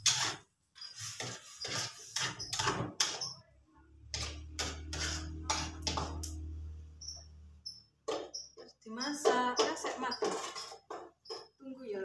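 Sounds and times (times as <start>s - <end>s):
metal spatula scraping a wok: 0.0s - 3.4s, 4.1s - 6.3s, 9.1s - 11.5s.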